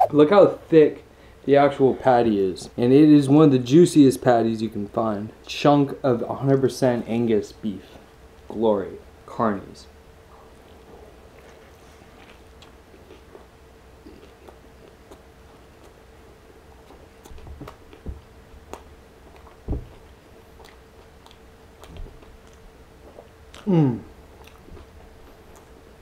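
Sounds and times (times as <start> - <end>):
wet chewing mouth clicks: 11.4 - 16.0, 18.7 - 23.8, 24.4 - 25.9.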